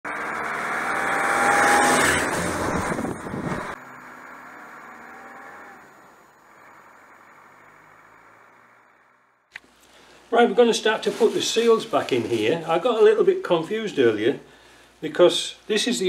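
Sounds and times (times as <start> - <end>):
car engine and tyre noise on gravel: 0.1 - 14.2
faint hiss: 5.6 - 16.0.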